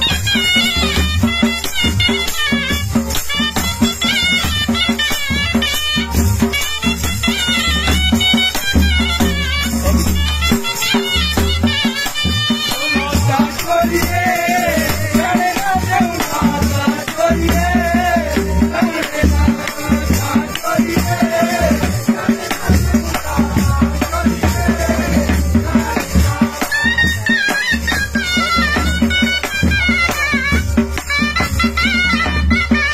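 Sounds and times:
dhol drum beating: 0.0 - 32.9
rattling hand percussion: 0.0 - 32.9.

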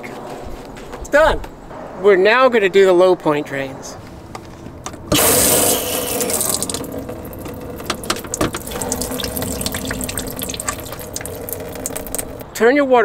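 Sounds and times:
water gushing from drain valves: 5.1 - 12.4.

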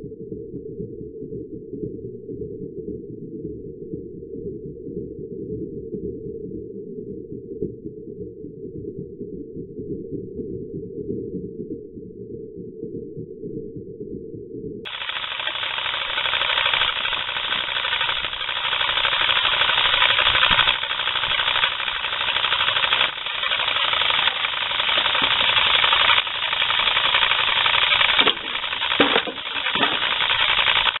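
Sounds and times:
model steam engine chuffing: 14.9 - 31.0
steam hissing: 14.9 - 31.0.

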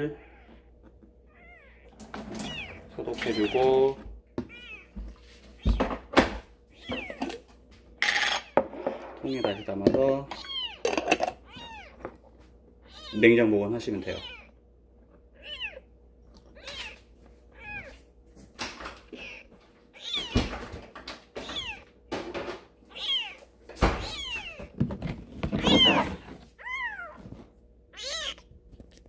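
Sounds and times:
kitten mewing: 0.0 - 0.7, 12.8 - 13.3, 14.0 - 14.6, 15.3 - 18.0, 19.0 - 20.5, 27.9 - 29.0.

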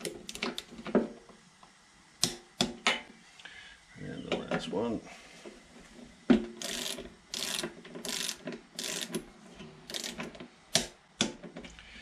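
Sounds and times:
sharp ratchet click: 6.6 - 9.2, 9.9 - 11.0
socket ratchet ratcheting: 6.6 - 9.2, 9.9 - 10.9.

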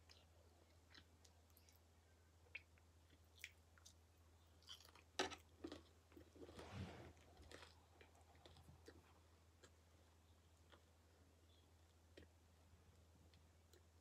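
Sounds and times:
chewing crispy bacon: 2.5 - 6.6, 7.2 - 11.1.

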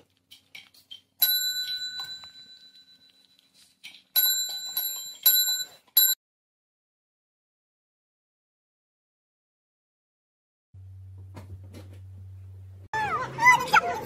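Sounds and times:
desk service bell dinging: 1.2 - 3.1, 4.2 - 6.2.

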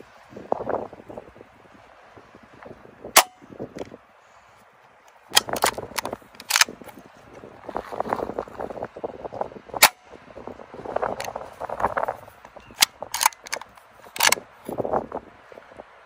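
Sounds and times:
air rifle sharp cracks: 3.2 - 3.4, 5.4 - 6.8, 9.8 - 10.0, 12.8 - 14.4
cocking lever clicks and clacks: 5.1 - 7.0, 12.8 - 14.4.

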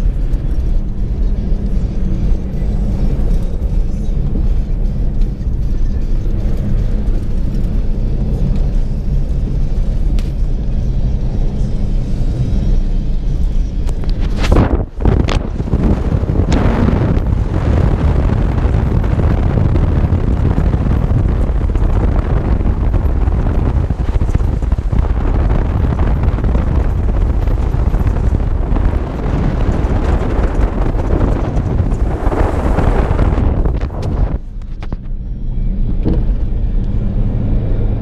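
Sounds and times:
tyre and driving noise: 0.0 - 38.0
wind buffeting microphone: 13.9 - 35.2.

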